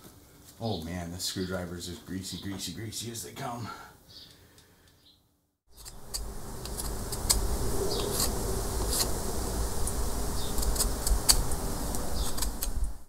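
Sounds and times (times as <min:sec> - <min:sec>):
insect-like buzz: 0:05.7 - 0:13.0
knife scraping wooden paddle: 0:05.8 - 0:09.2
low rumble: 0:06.0 - 0:13.0.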